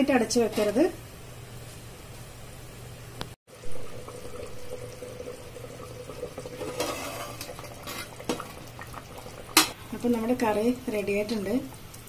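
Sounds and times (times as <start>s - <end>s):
curry bubbling in pot: 3.5s - 12.0s
steel plate lid scrape: 6.6s - 8.1s.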